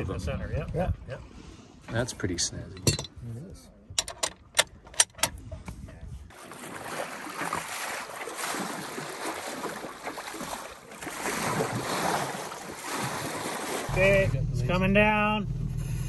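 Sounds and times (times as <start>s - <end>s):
wind buffeting microphone: 0.0s - 1.2s, 5.1s - 6.4s
wind and water rushing: 6.2s - 14.3s.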